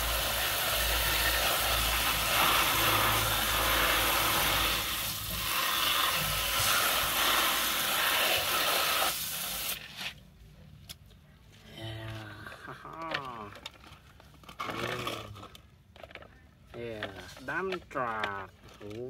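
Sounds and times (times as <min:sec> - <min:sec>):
hose spraying water: 0:00.0 - 0:10.2.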